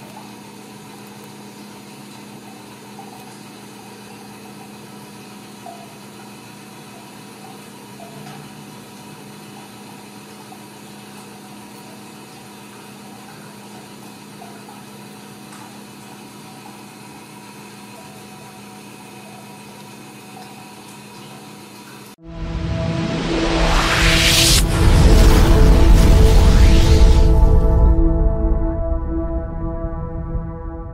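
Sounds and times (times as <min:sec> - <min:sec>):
machine hum: 0:22.2 - 0:30.9.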